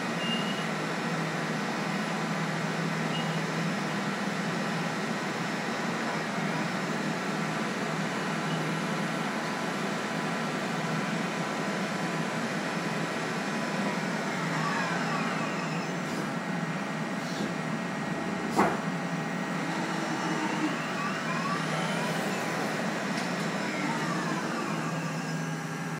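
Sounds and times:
machine hum: 0:16.7 - 0:25.9
lathe whine changing pitch: 0:19.2 - 0:25.9.

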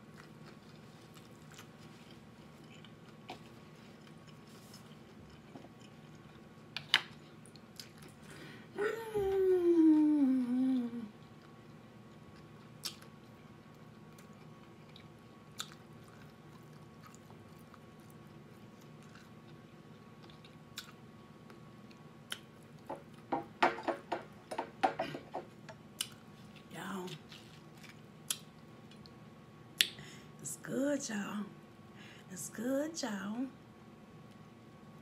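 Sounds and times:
person chewing: 0:00.0 - 0:08.2, 0:11.1 - 0:23.3, 0:26.0 - 0:26.6, 0:27.2 - 0:29.2.

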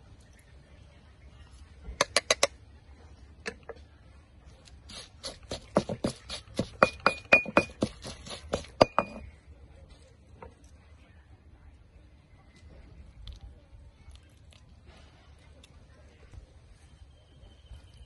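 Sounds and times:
pestle pounding in stone mortar: 0:04.9 - 0:09.3
ringing clink of pestle: 0:06.8 - 0:07.9, 0:08.8 - 0:09.3.

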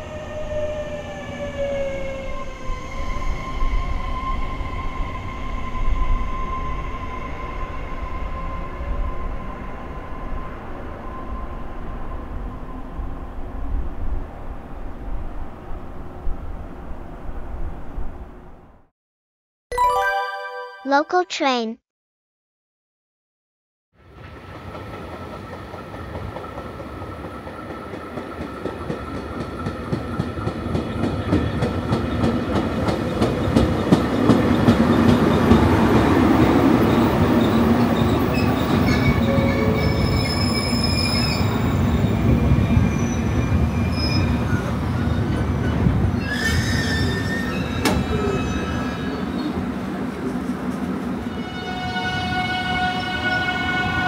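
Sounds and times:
high-pitched wheel squeals: 0:46.2 - 0:49.5.

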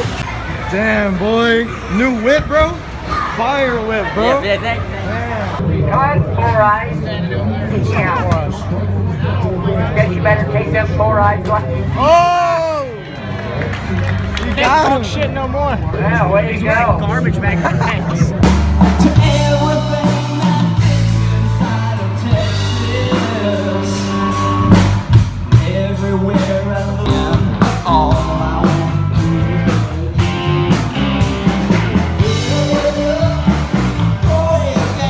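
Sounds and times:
electric guitars: 0:18.2 - 0:35.0
drum kit beat: 0:18.3 - 0:35.0
man singing into a microphone: 0:19.0 - 0:24.7, 0:25.5 - 0:29.9, 0:32.2 - 0:35.0.

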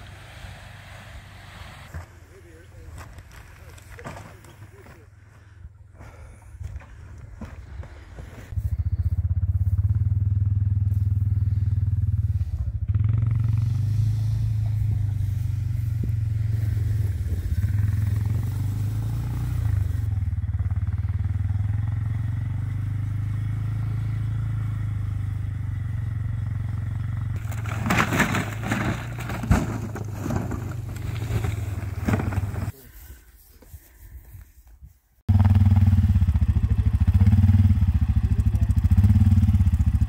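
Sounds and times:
rustling scraping noise: 0:27.4 - 0:35.2
small petrol engine running: 0:35.3 - 0:40.0.

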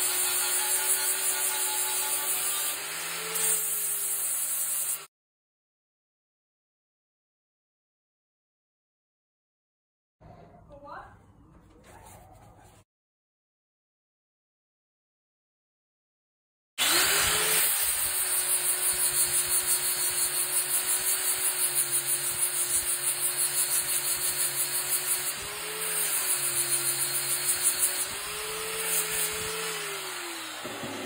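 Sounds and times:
power tool motor whining: 0:16.8 - 0:31.0.

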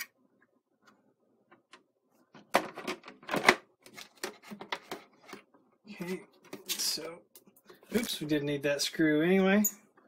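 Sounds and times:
plastic knocks and scrapes: 0:01.5 - 0:05.6.

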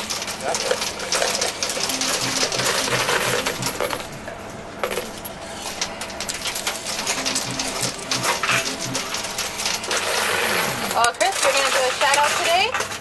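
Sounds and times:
coins clinking in coin pusher: 0:00.0 - 0:13.0.

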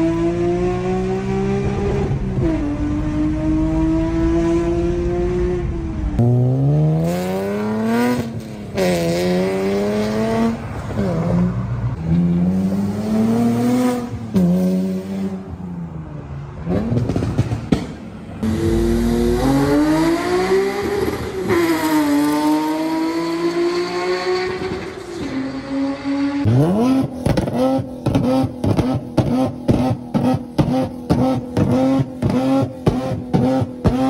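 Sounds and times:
car engine revving: 0:16.6 - 0:34.0.

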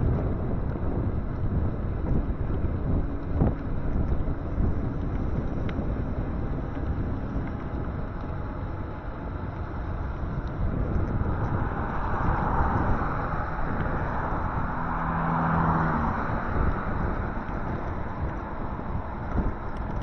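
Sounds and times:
road and traffic noise: 0:00.0 - 0:20.0
wind buffeting microphone: 0:00.0 - 0:20.0.

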